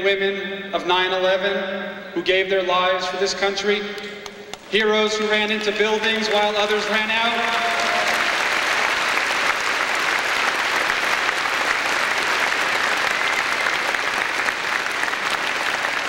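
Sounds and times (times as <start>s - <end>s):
audience applauding: 4.5s - 16.0s.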